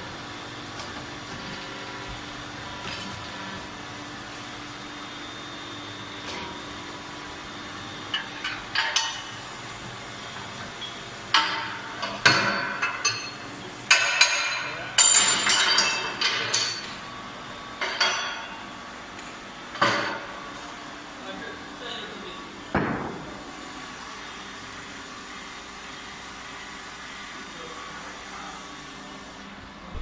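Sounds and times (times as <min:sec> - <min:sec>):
metal clanking and clinking: 0:11.4 - 0:16.9.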